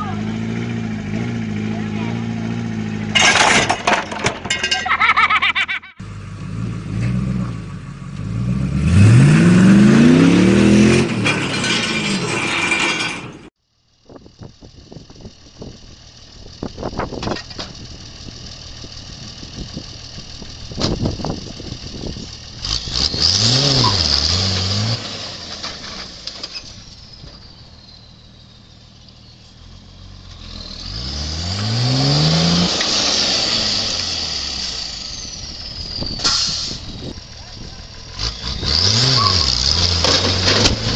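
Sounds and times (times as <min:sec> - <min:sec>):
van engine revving: 0:00.0 - 0:03.8, 0:06.0 - 0:12.9, 0:14.4 - 0:40.9
tow truck engine revving: 0:00.0 - 0:04.4, 0:05.0 - 0:13.5, 0:14.4 - 0:40.9
knocks and scrapes: 0:03.1 - 0:04.9, 0:10.8 - 0:13.5, 0:39.4 - 0:40.9.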